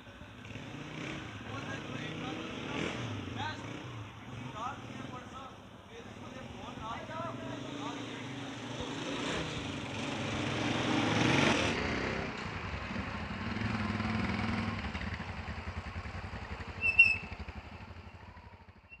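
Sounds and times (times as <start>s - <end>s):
small motorcycle engines passing: 6.2s - 18.9s.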